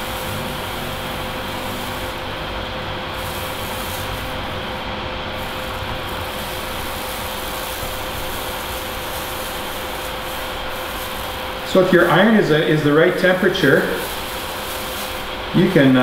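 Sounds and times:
extractor fan running: 0.0s - 16.0s.

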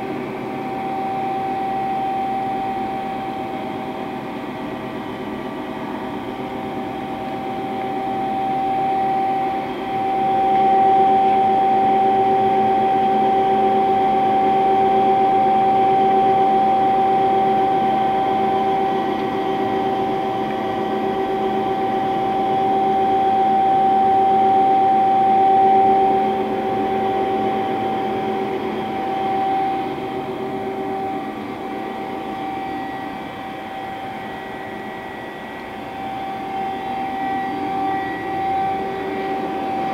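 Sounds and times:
machine whine with hum: 0.0s - 39.9s.

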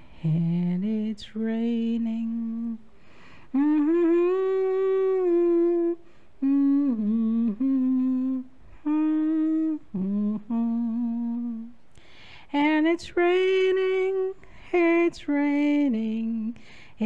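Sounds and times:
woman humming: 3.6s - 11.7s.

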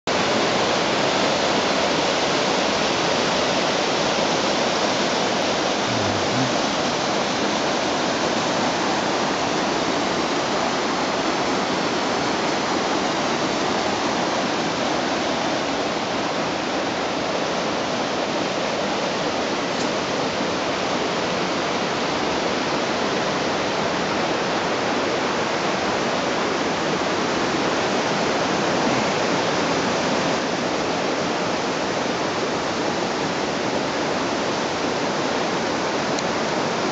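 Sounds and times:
waterfall rushing: 0.1s - 36.9s.

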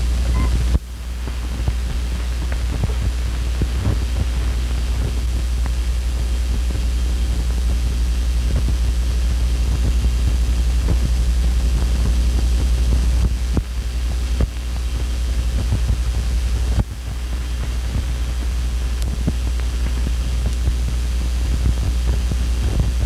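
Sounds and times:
low hum: 0.0s - 23.0s
film clicks and crackles: 0.5s - 5.8s.

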